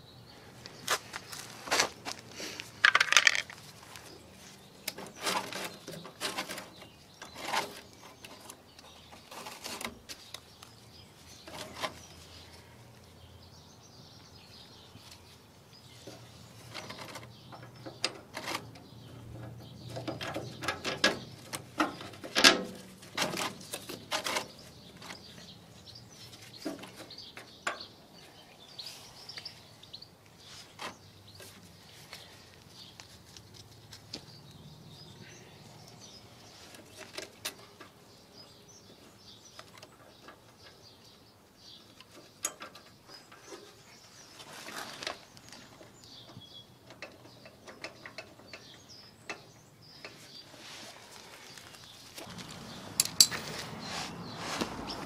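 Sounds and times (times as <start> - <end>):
faint birds chirping: 0.0 - 55.0
metal parts clicking and tapping: 2.8 - 3.6, 52.2 - 53.6.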